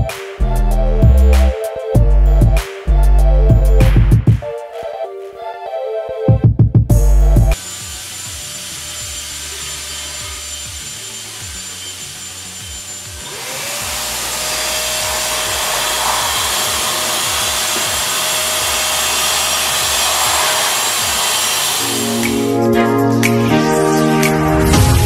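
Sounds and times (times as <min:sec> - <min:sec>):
fan motor hum: 0:07.6 - 0:22.7
ceiling fan air rush: 0:13.7 - 0:22.6.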